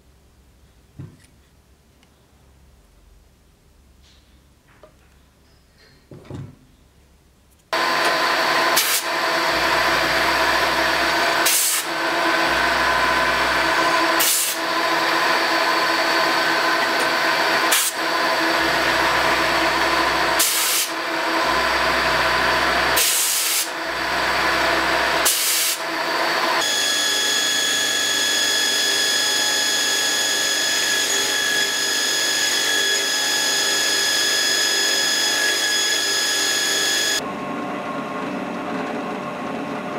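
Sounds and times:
belt grinder whining: 0:07.8 - 0:37.2
milling machine cutting steel: 0:07.8 - 0:37.2.

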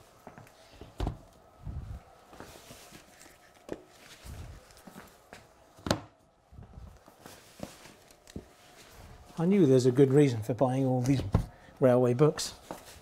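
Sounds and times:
soft footsteps and shuffling: 0:00.0 - 0:13.0
books knocking on wood: 0:05.8 - 0:06.1.

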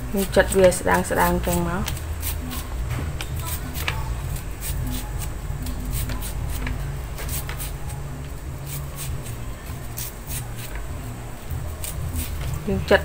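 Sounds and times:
knife slicing shallots: 0:00.1 - 0:13.0.

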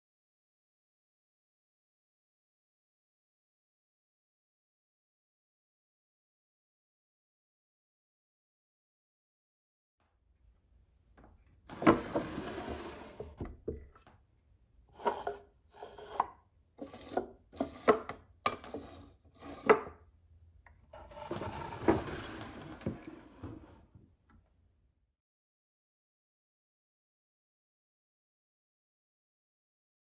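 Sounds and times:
wooden drawers sliding: 0:11.7 - 0:13.6, 0:21.0 - 0:23.9.

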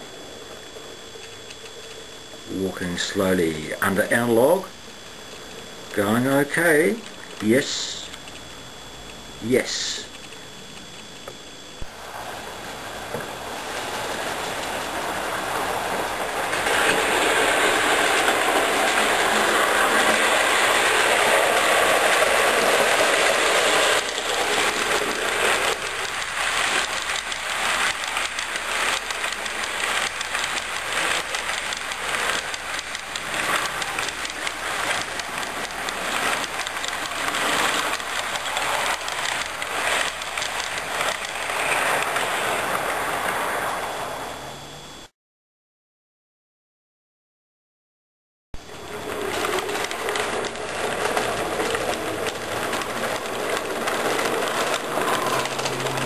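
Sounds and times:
model train rumbling: 0:12.0 - 0:44.2, 0:48.6 - 0:56.0
wheels clicking over rail joints: 0:48.8 - 0:56.0.

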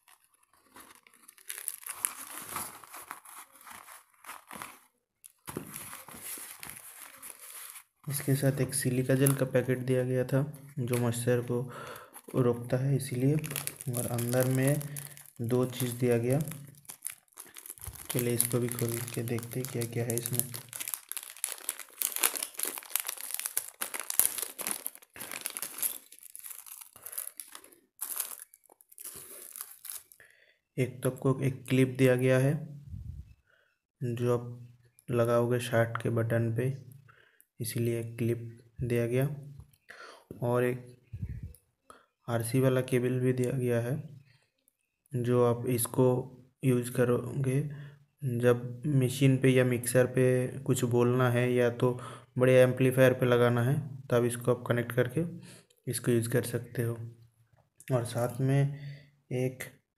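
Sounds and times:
pouch crinkling and rustling: 0:00.0 - 0:08.2, 0:13.0 - 0:30.2.

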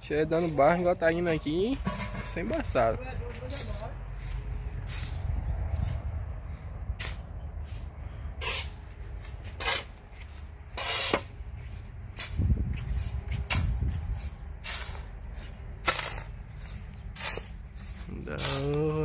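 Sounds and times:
shovelled sand swishing: 0:03.5 - 0:06.1, 0:07.0 - 0:10.0, 0:10.7 - 0:19.0.

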